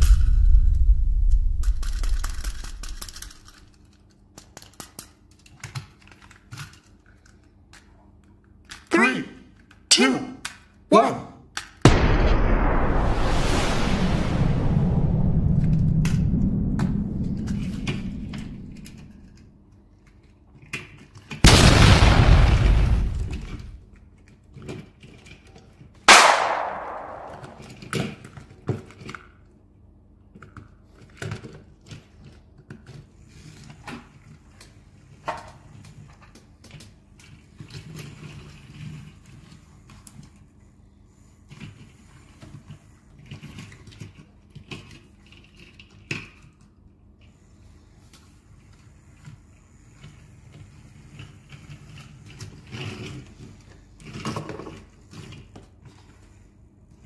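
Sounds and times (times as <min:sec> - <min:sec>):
sharp bang with ringing tail: 0:00.0 - 0:03.3, 0:11.9 - 0:19.2, 0:26.1 - 0:27.7
loud noisy burst: 0:00.0 - 0:03.4, 0:11.9 - 0:19.3, 0:21.5 - 0:23.8, 0:26.1 - 0:27.7.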